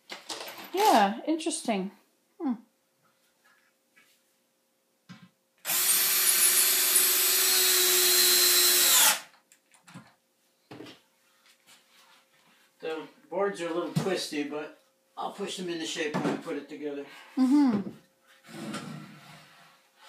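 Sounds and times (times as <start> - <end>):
cordless drill drilling into wood: 5.6 - 9.3.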